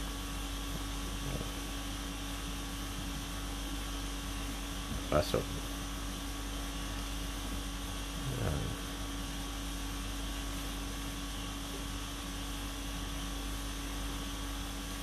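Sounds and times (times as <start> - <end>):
steady room hum: 0.0 - 15.0.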